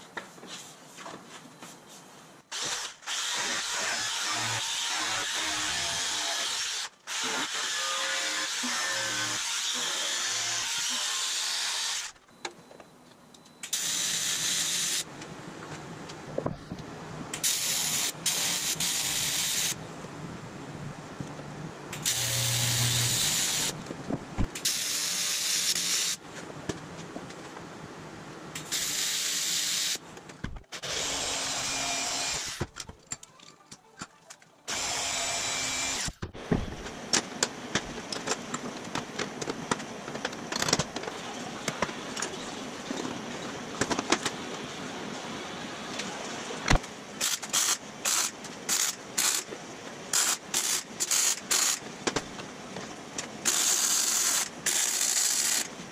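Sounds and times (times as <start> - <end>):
short arc-welding bursts: 22.0 - 23.7, 28.6 - 30.0
welding torch hissing: 22.0 - 23.8, 28.6 - 30.0.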